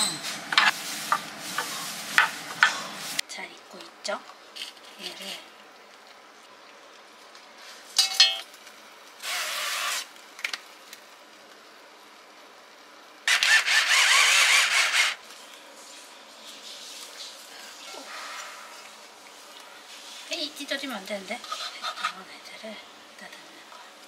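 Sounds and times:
metal tongs clinking on pot: 8.0 - 8.5
short hissing bursts: 9.2 - 10.1.

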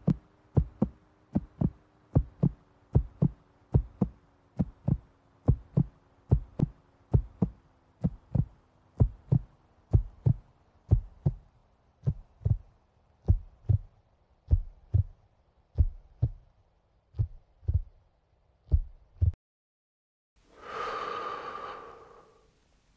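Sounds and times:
heartbeat thumps: 0.0 - 16.5, 17.1 - 18.0, 18.6 - 19.4.

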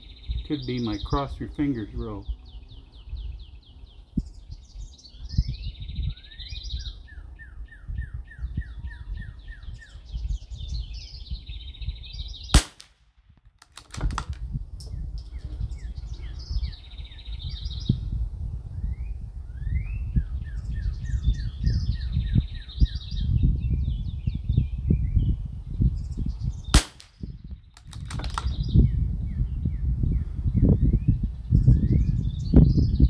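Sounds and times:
songbird singing trills: 0.0 - 12.7, 14.8 - 33.0
wind rumbling on microphone: 0.0 - 33.0
rifle shot: 12.6 - 14.4, 26.8 - 28.6.

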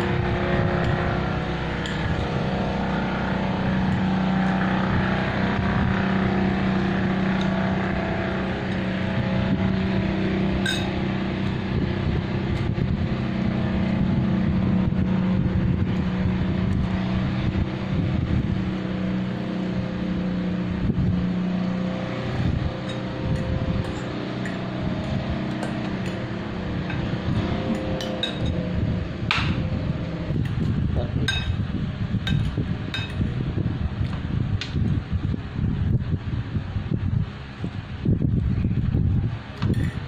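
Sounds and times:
motor droning hum: 0.0 - 40.0
high clink: 10.6 - 11.0.

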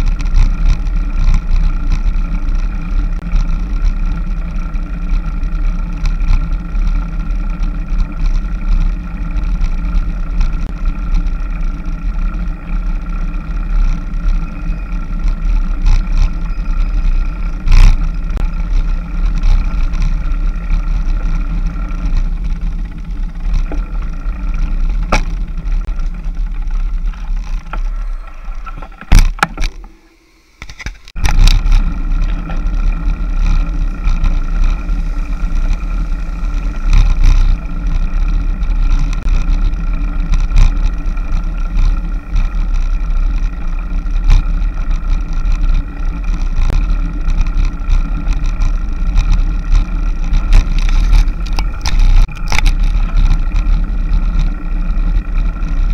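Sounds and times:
bicycle road noise: 0.0 - 55.9
wind rumble: 0.0 - 55.9.

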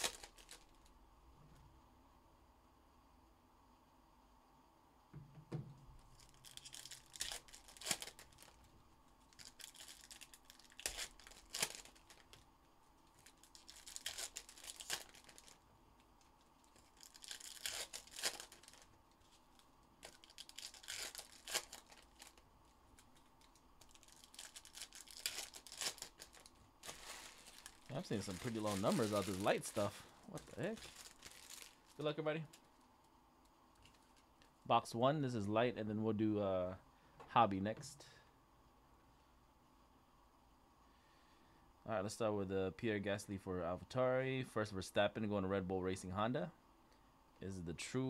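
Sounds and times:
wrappers torn and crinkled: 0.0 - 0.9, 6.1 - 12.4, 13.0 - 15.6, 16.2 - 32.0.

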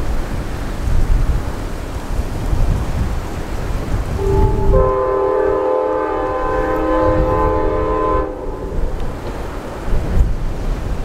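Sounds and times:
train horn chord: 4.2 - 9.4.

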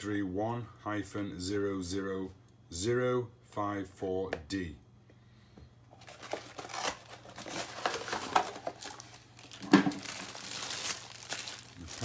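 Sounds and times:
plastic bag crinkling: 6.0 - 12.0
sharp plastic crackle: 6.0 - 12.0.

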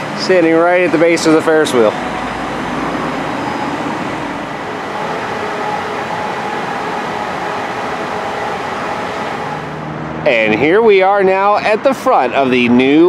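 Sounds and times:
faint hum: 0.4 - 10.4.

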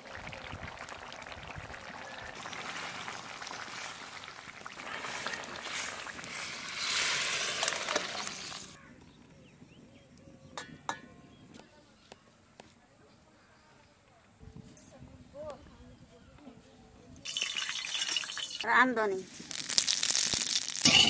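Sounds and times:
curry hissing and bubbling: 0.0 - 8.8, 17.3 - 18.7
curry pouring into steel bowl: 17.3 - 18.7.

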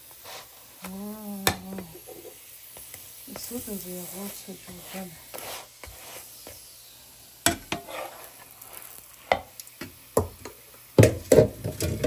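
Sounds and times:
bread sizzling: 0.0 - 12.0
metal spatula scraping frying pan: 3.3 - 6.6, 7.4 - 9.5.

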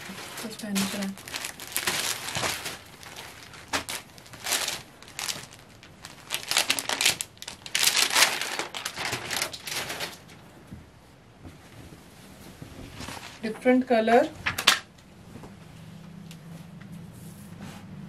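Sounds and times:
fabric crinkly rustling: 0.0 - 14.3.

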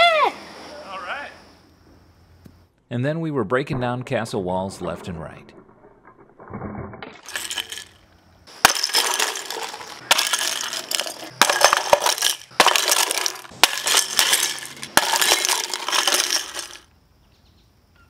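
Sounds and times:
aluminium cans clattering: 7.1 - 16.8
tennis ball hitting cans: 7.2 - 16.8.

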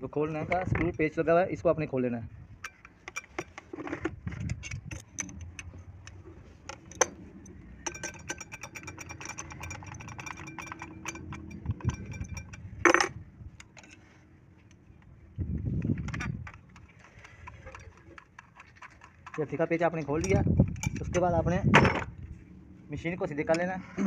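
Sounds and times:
spanner clinking on metal nut: 2.6 - 14.1, 15.8 - 21.3.

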